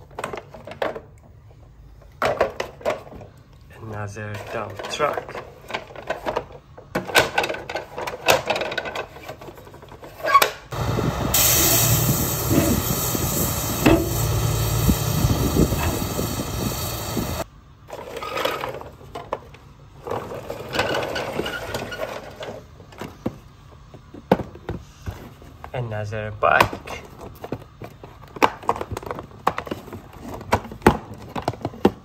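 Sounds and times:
dump truck engine rumble with hiss: 10.7 - 17.5.

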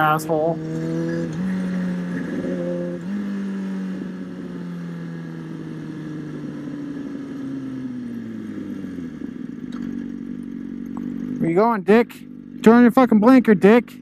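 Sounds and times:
motorcycle engine: 0.0 - 14.0
wind noise: 0.6 - 4.6.

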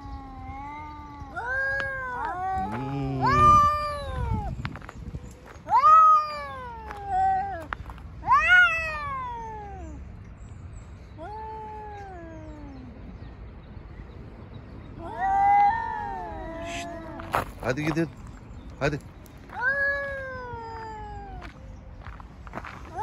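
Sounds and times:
cats yowling: 0.0 - 4.6, 5.6 - 10.0, 11.2 - 13.2, 15.0 - 17.6, 19.6 - 21.5.

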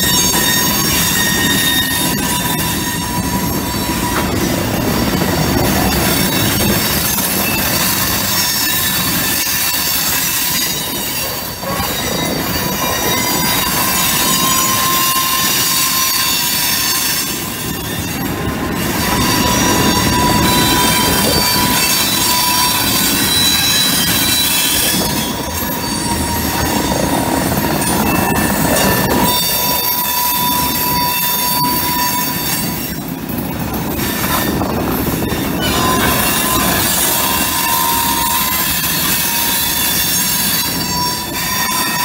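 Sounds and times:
steel wheels squealing: 0.0 - 42.0
train rumbling and clattering on rails: 0.0 - 42.0.

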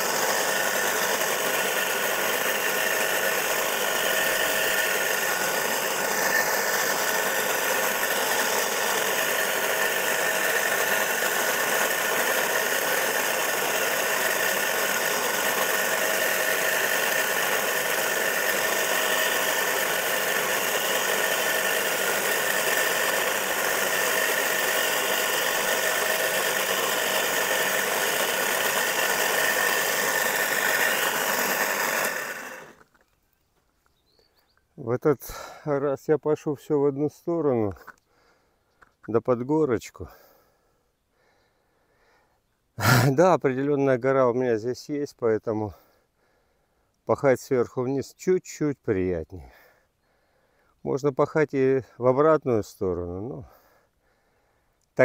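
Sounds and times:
cultivator electric motor running: 0.0 - 33.0, 42.8 - 43.1.

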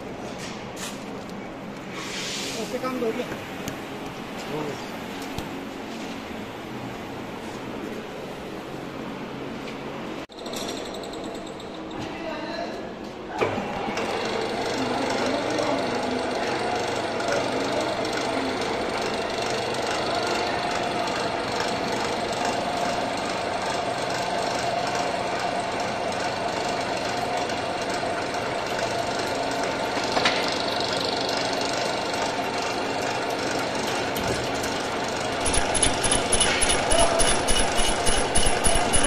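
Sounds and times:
workshop machinery humming: 0.0 - 39.0
lathe chuck spinning: 35.4 - 39.0
rhythmic pulsing knock: 35.4 - 39.0
sharp click: 35.4 - 39.0.

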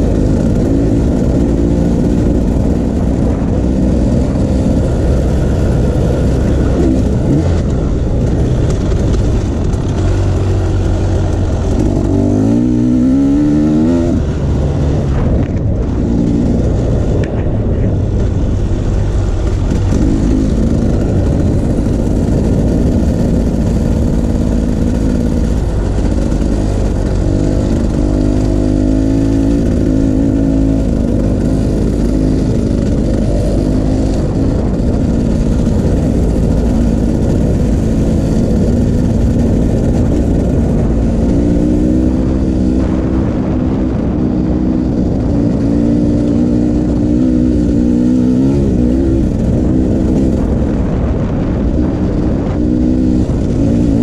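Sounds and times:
off-road vehicle engine revving: 0.0 - 54.0.

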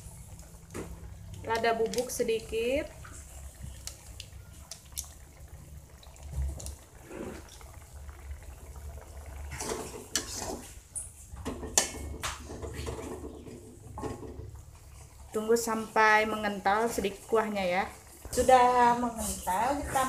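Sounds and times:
sauce bubbling in a wok: 0.0 - 20.0
metal spatula scraping a wok: 9.6 - 10.8.

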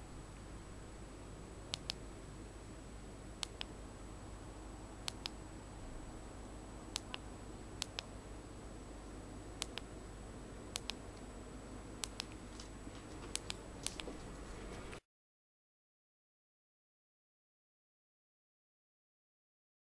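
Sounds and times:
faint steady hiss: 0.0 - 15.0
flashlight switch clicking: 5.0 - 5.4, 6.9 - 7.2, 9.6 - 9.8, 10.7 - 11.0.

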